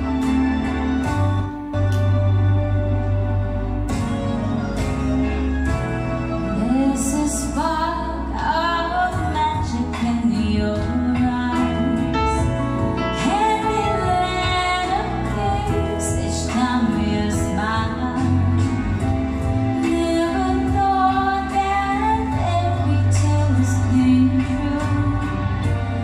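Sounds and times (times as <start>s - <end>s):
live keyboard accompaniment: 0.0s - 26.0s
woman singing into a microphone: 6.5s - 19.1s, 19.7s - 26.0s.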